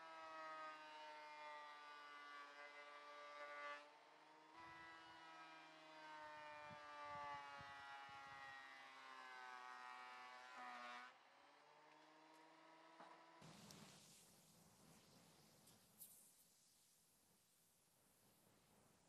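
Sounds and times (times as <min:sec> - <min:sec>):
thickness planer motor whine: 0:00.1 - 0:13.4.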